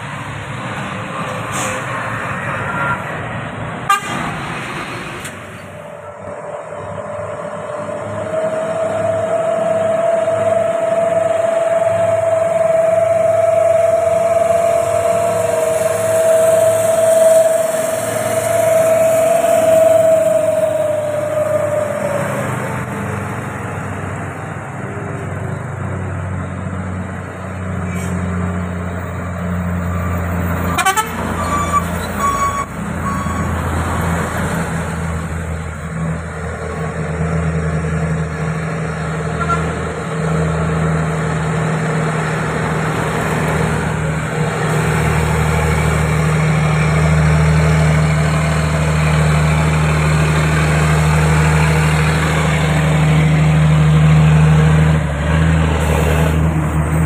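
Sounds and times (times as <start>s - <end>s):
truck diesel engine droning: 0.0s - 57.0s
truck horn toot: 1.5s - 3.2s, 3.8s - 4.4s, 30.6s - 33.6s, 39.3s - 39.8s.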